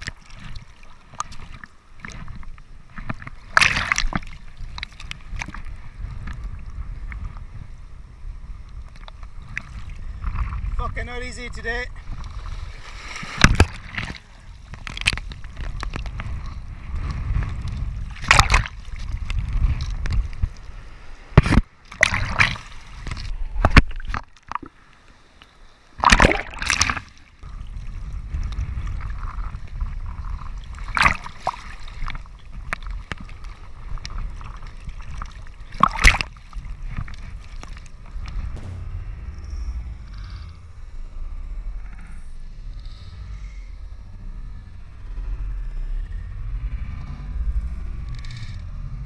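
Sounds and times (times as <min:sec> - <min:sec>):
low rumble of water: 0:00.0 - 0:49.0
sea waves splashing: 0:12.0 - 0:15.3, 0:20.6 - 0:27.8, 0:30.7 - 0:38.8.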